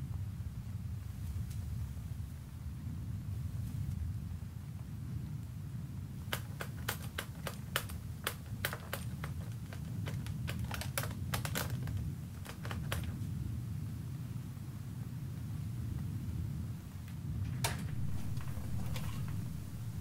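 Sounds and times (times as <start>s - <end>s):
low steady hum: 0.0s - 20.0s
sharp plastic switch clicks: 6.3s - 13.1s.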